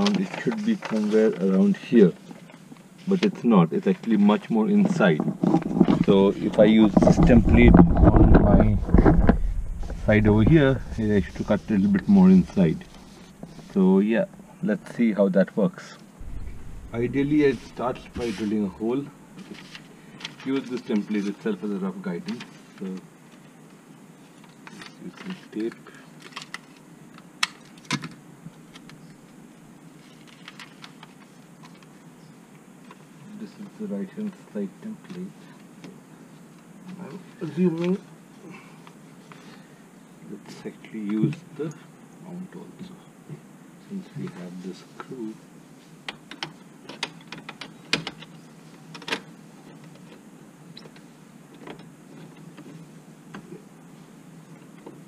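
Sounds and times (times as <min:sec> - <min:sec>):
low steady hum: 0:05.0 - 0:15.2, 0:16.1 - 0:20.1.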